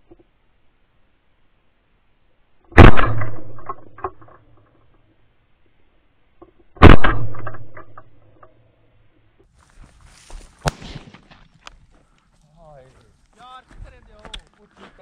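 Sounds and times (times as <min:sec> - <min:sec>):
shotgun shots with echo: 0:02.8 - 0:04.3, 0:06.8 - 0:08.2, 0:10.6 - 0:11.5.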